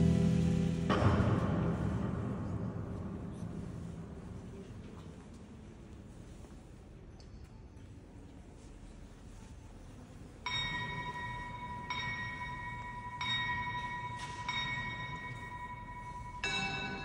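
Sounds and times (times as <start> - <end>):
clock bell striking: 10.4 - 17.0
lower-toned bell strike: 10.5 - 17.0.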